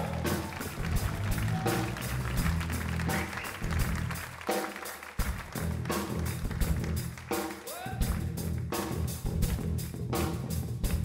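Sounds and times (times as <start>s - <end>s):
drum kit beat: 0.0s - 11.0s.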